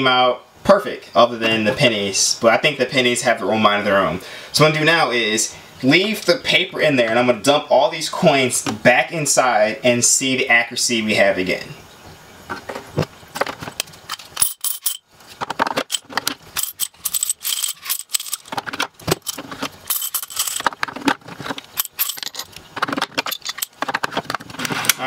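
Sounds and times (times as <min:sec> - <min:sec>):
coins clinking into glass jars: 0:14.1 - 0:15.0, 0:15.8 - 0:18.5, 0:19.2 - 0:20.8, 0:21.7 - 0:23.8.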